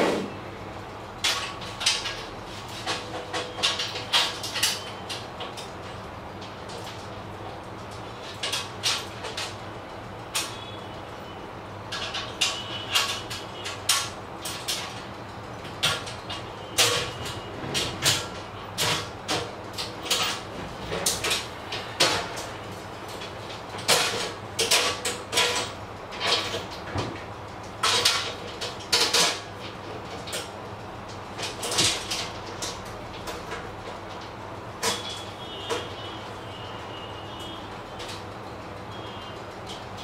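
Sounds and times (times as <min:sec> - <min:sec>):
metal clanks and rattles: 0:23.1 - 0:27.2.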